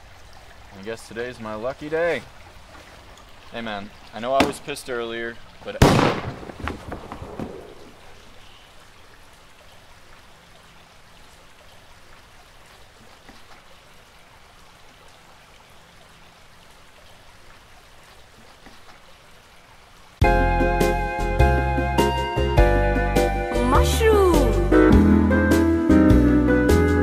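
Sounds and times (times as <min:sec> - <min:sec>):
stream running water: 0:00.0 - 0:21.0
loud music: 0:20.2 - 0:27.0.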